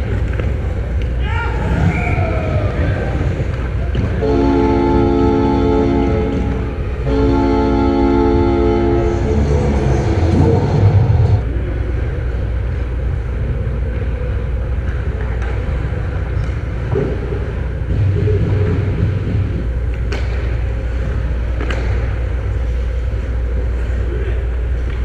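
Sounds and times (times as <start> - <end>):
low rumble of arena: 0.0 - 25.0
ice rink horn blast: 4.0 - 11.4.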